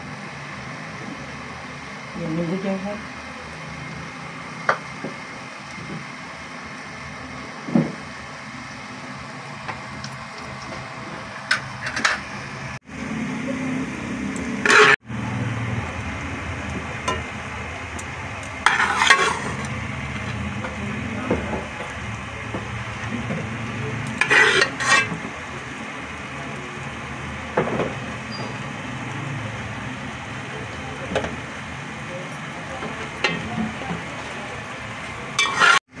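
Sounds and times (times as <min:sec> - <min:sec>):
metal spoon scraping cooking pot: 0:14.6 - 0:15.0, 0:18.6 - 0:19.7, 0:24.0 - 0:25.3, 0:35.4 - 0:35.8.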